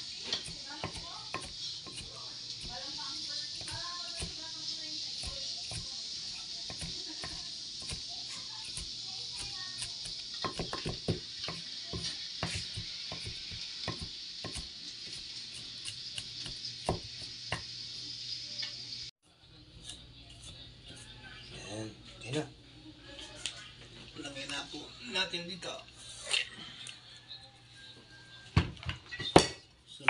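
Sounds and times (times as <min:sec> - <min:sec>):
steady hiss: 0:00.0 - 0:19.1
knife knocking on cutting board: 0:10.4 - 0:14.6.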